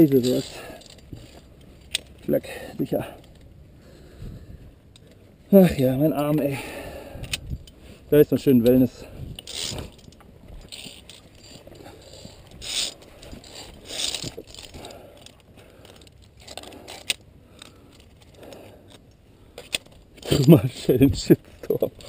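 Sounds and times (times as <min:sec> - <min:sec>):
carabiners clinking on steel cable: 0:00.0 - 0:03.5, 0:05.8 - 0:22.0.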